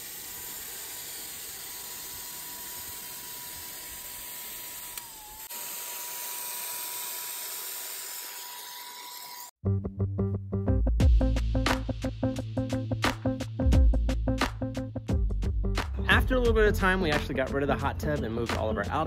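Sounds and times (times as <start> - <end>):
electric paint sprayer whining: 0.0 - 9.6.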